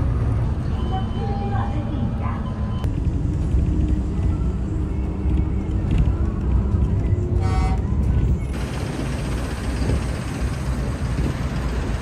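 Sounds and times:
bus engine and road rumble: 0:00.0 - 0:12.0.

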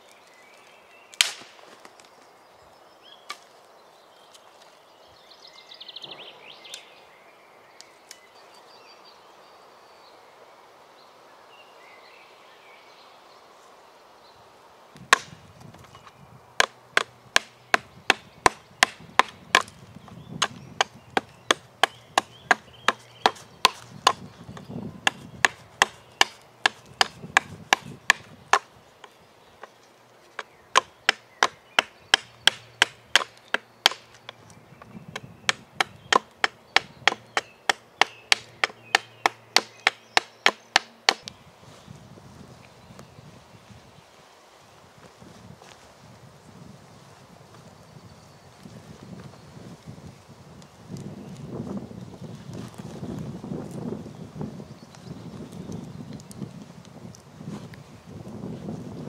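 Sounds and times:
hatchet chopping wood: 0:01.2 - 0:01.5, 0:15.0 - 0:15.4, 0:16.6 - 0:29.2, 0:30.4 - 0:41.4.

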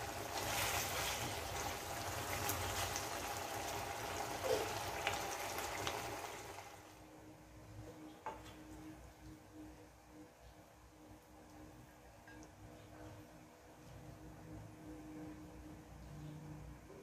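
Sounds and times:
sauce bubbling and sizzling: 0:00.0 - 0:07.3.

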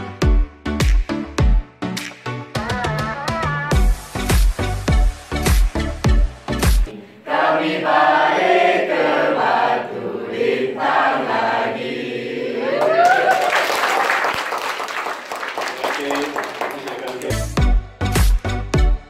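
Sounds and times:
group singing together: 0:06.9 - 0:13.0
people clapping: 0:12.7 - 0:17.6.

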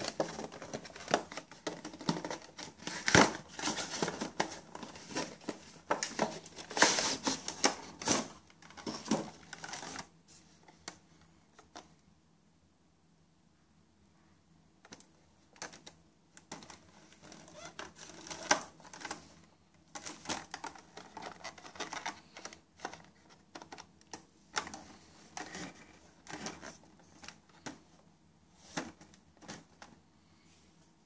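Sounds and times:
plastic blister tray crinkling: 0:00.0 - 0:10.1, 0:14.9 - 0:27.8.

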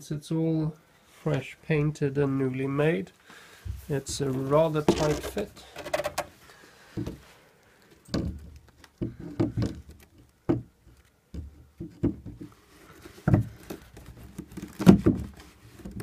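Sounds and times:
knocks and thuds of panel: 0:11.3 - 0:12.5.

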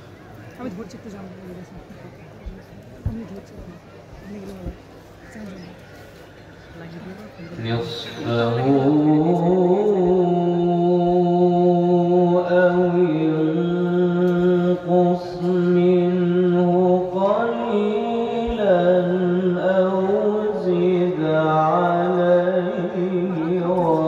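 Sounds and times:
man chanting through microphone: 0:07.6 - 0:24.0.

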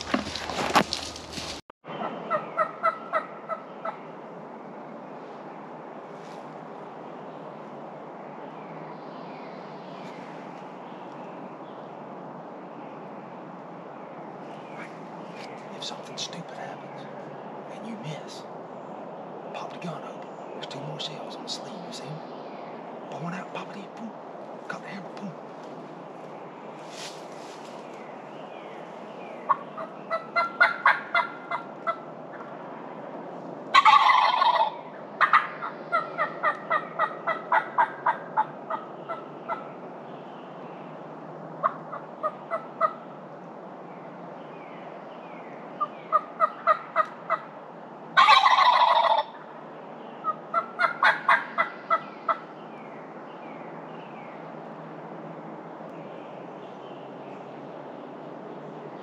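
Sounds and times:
hen turkey yelps: 0:02.3 - 0:04.0, 0:29.5 - 0:32.0, 0:33.7 - 0:39.6, 0:48.2 - 0:49.4, 0:50.5 - 0:52.4
turkey gobbling: 0:02.3 - 0:04.0, 0:29.5 - 0:32.5, 0:33.7 - 0:39.6, 0:48.2 - 0:49.4, 0:50.2 - 0:52.4.

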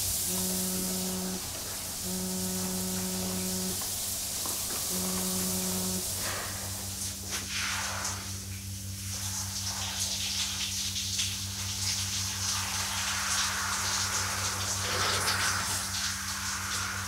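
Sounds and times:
low hum: 0:00.0 - 0:03.8, 0:04.7 - 0:07.3
shower water splashing: 0:00.0 - 0:17.0.

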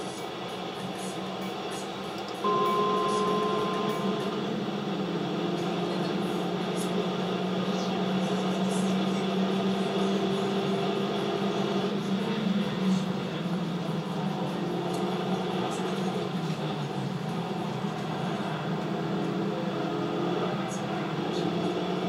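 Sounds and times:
car engine and road noise: 0:00.0 - 0:22.0
short high tone: 0:02.4 - 0:05.8.

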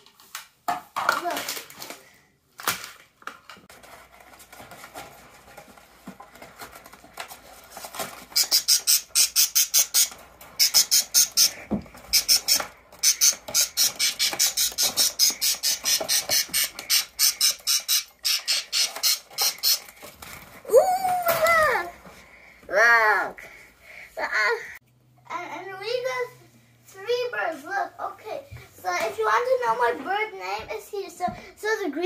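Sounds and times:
budgies chirping: 0:08.3 - 0:19.9.

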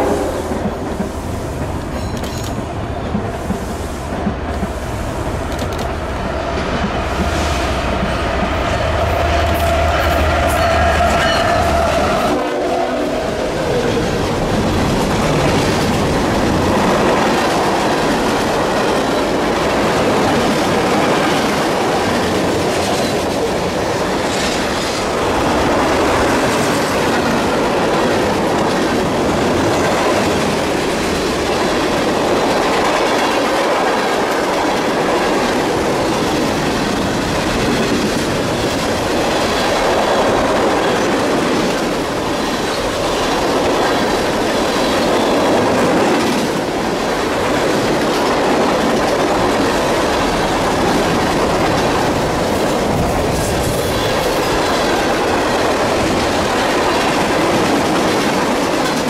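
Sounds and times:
train horn blast: 0:08.9 - 0:13.5
freight cars rumbling and clattering: 0:13.1 - 0:59.0.

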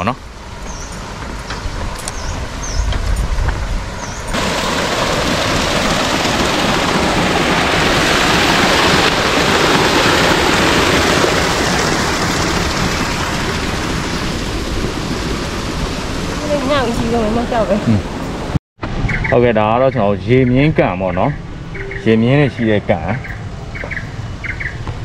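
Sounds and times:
pond aerator splashing water: 0:04.3 - 0:17.8.

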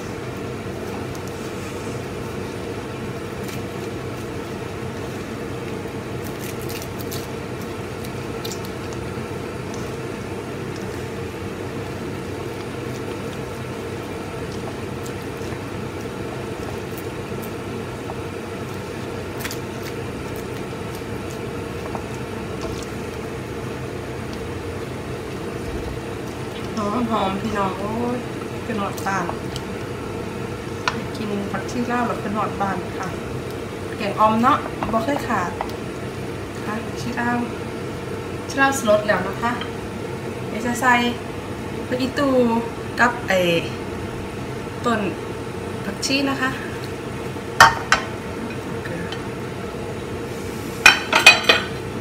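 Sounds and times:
curry simmering: 0:07.3 - 0:38.8.

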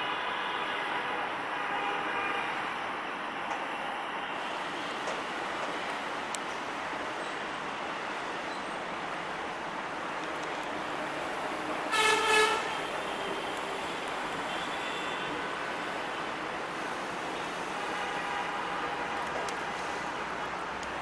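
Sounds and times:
locomotive horn blast: 0:11.5 - 0:15.6.

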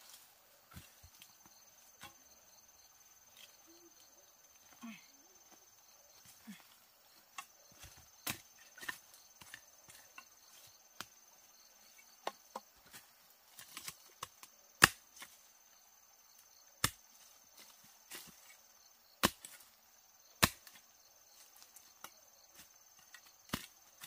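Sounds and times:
digging tool chopping into soil: 0:07.3 - 0:10.0, 0:13.6 - 0:15.3, 0:16.8 - 0:17.0, 0:19.2 - 0:19.7, 0:20.4 - 0:20.8, 0:23.5 - 0:24.0.

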